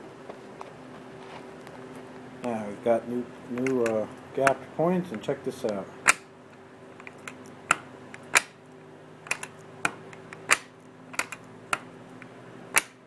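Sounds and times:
magneto spark snaps: 7.0s - 8.6s.

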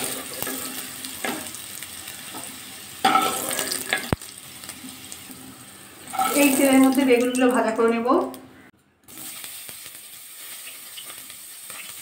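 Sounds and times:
potatoes sizzling in oil: 0.0s - 7.8s, 9.1s - 12.0s
metal spoon scraping a pan: 3.0s - 4.2s, 6.1s - 6.6s.

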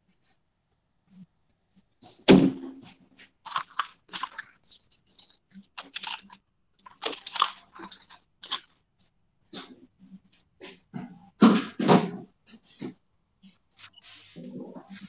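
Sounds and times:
short rustling: 13.8s - 15.0s.

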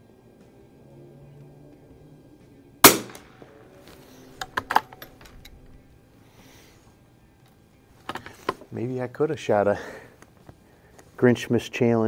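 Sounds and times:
rifle shot: 2.8s - 3.5s
rifle action clicking: 2.9s - 3.3s.

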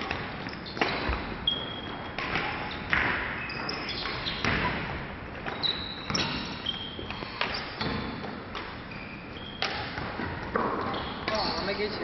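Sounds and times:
rackets striking shuttlecocks: 0.0s - 6.6s
shoes squeaking on wooden floor: 0.0s - 12.0s.

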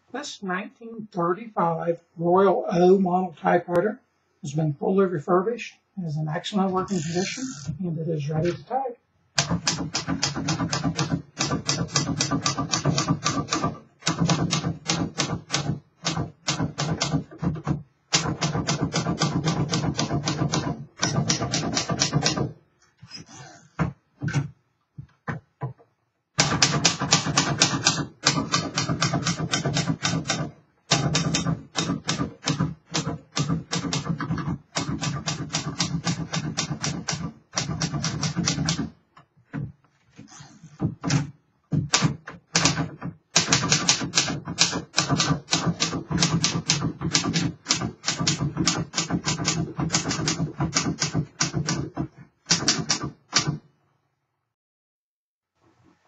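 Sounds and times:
typewriter typing: 9.4s - 22.6s, 26.4s - 39.0s, 41.9s - 53.6s.

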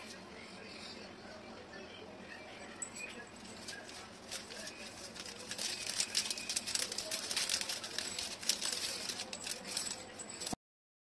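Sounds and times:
wrapping paper rustling and crinkling: 3.3s - 10.6s.

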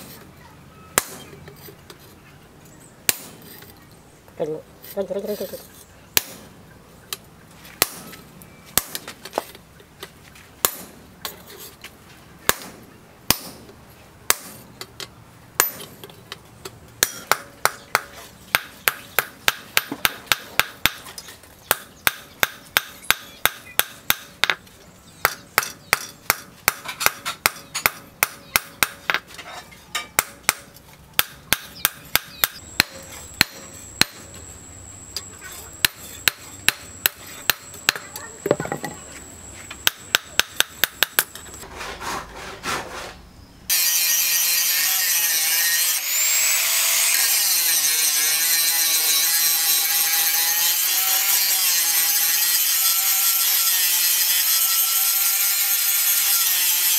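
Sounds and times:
hammer striking steel on anvil: 1.0s - 1.3s, 15.6s - 16.0s, 17.0s - 21.0s, 25.2s - 29.2s, 29.9s - 34.4s, 35.2s - 39.1s.

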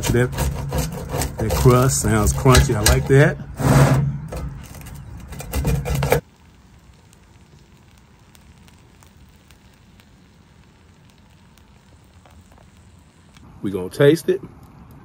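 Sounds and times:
pizza cutter crunching through crust: 0.0s - 4.0s
faint steady hiss: 6.2s - 15.0s.

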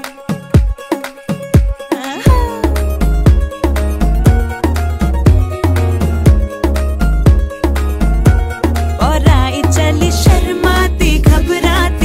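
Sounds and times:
steady drum beat: 1.6s - 9.5s
sliding melodic phrase: 2.2s - 9.7s
deep bass: 2.3s - 12.0s.

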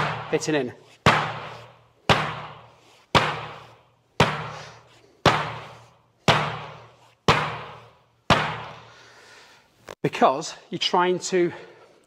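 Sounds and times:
fist thudding on bean bags: 1.0s - 4.6s, 5.2s - 8.8s.

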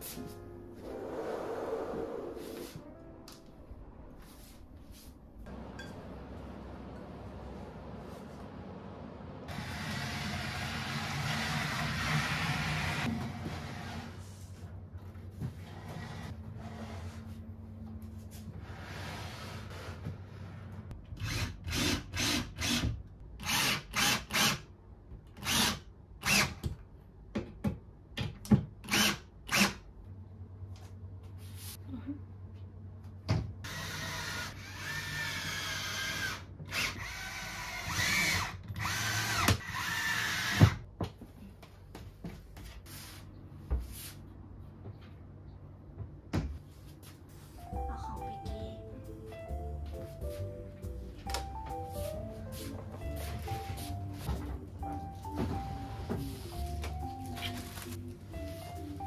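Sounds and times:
power drill running: 33.7s - 40.7s.

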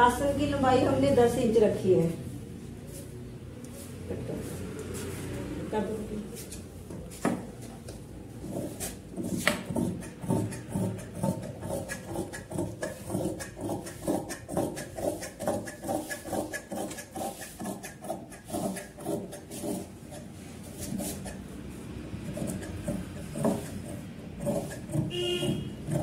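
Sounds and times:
shears snipping cloth: 10.5s - 21.4s.

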